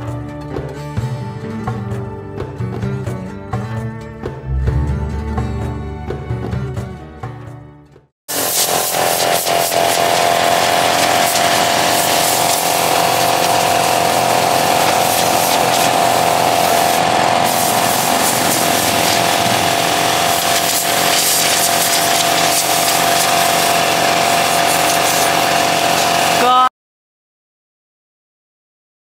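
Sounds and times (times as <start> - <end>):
small petrol engine running: 8.3 - 26.7.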